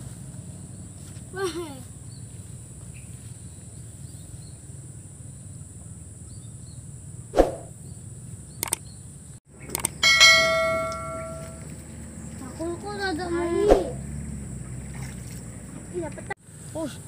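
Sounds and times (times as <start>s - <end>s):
mouse-click sound effects: 8.6s - 8.8s, 9.7s - 9.9s
ringing bell chime: 10.0s - 11.7s.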